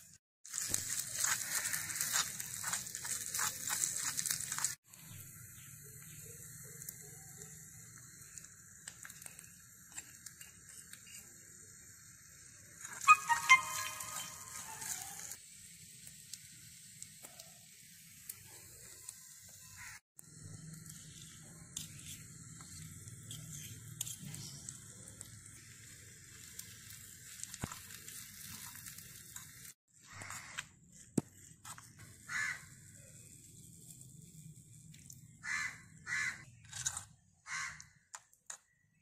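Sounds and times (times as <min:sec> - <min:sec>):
spoon scraping steel bowl: 0:36.6 - 0:37.1.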